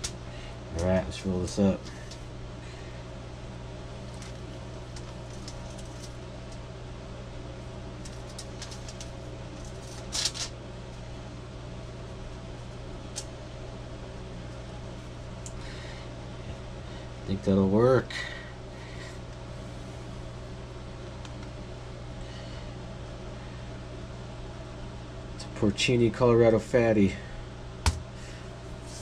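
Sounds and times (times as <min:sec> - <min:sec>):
low room hum: 0:00.0 - 0:29.0
foil crinkle: 0:04.0 - 0:06.2, 0:08.0 - 0:10.6
wrapper rustling on foil: 0:04.0 - 0:06.2, 0:08.0 - 0:10.6.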